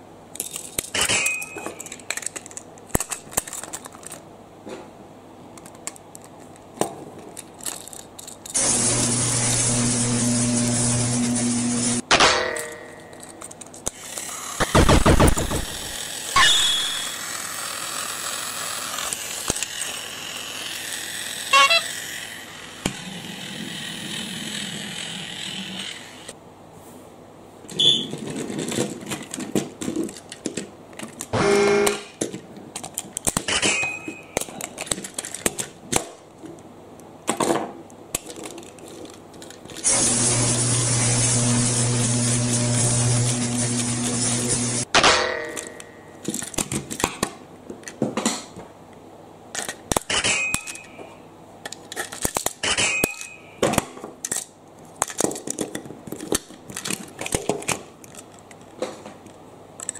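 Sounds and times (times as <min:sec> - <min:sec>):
plastic toy parts clicking and rattling: 0:00.3 - 0:04.3, 0:05.5 - 0:08.6, 0:12.6 - 0:26.4, 0:27.7 - 0:31.4, 0:32.0 - 0:40.2, 0:45.5 - 0:48.5, 0:49.5 - 0:59.9
steady hum: 0:08.4 - 0:17.6.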